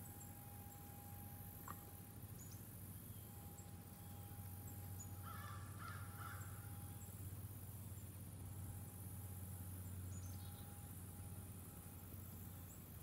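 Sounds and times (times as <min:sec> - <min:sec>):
low outdoor hum: 0:00.0 - 0:13.0
crow cawing: 0:05.2 - 0:06.6.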